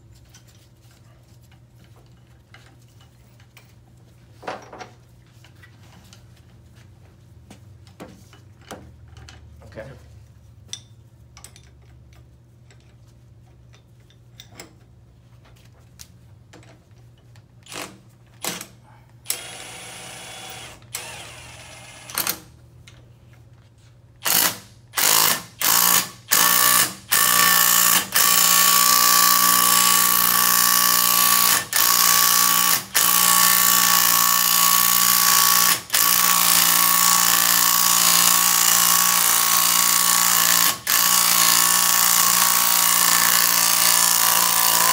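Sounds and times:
cordless power tool running: 19.3 - 22.3.

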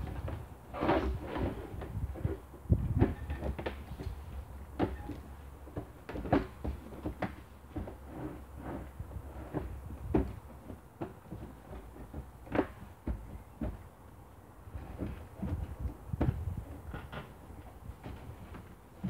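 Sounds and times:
hollow plastic knocks and clunks: 1.8 - 8.0, 9.5 - 14.0, 14.8 - 19.0.

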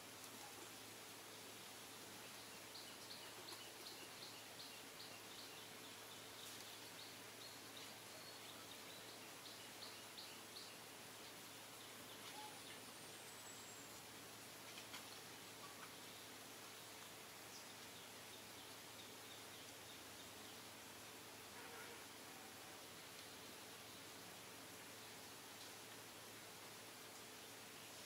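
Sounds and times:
steady hiss: 0.0 - 28.0
faint high chirp: 12.2 - 13.9.

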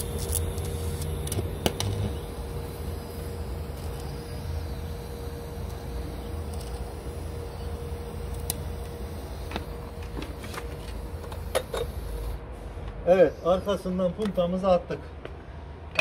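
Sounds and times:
welding arc humming: 0.0 - 12.5.

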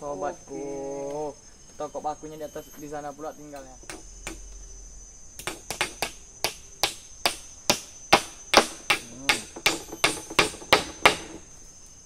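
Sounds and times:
high insect drone: 0.0 - 12.0
hammer striking nails into wood: 3.8 - 4.4, 5.4 - 11.5.

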